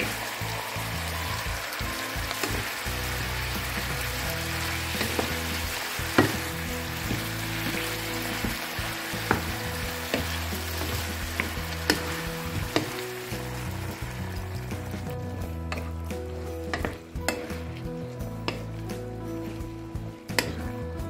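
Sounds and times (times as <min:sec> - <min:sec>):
food sizzling in a frying pan: 0:00.0 - 0:21.0
spatula knocking against pan: 0:16.7 - 0:17.5.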